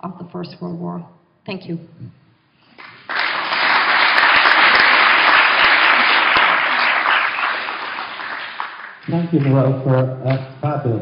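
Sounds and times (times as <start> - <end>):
audience applauding: 2.7 - 10.0.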